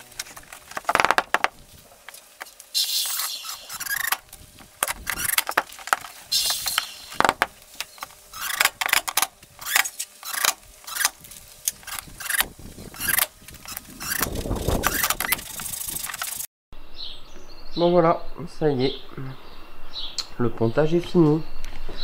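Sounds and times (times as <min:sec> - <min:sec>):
impact driver driving screws: 0:03.1 - 0:04.2, 0:04.8 - 0:05.6, 0:08.3 - 0:11.2, 0:11.8 - 0:15.4.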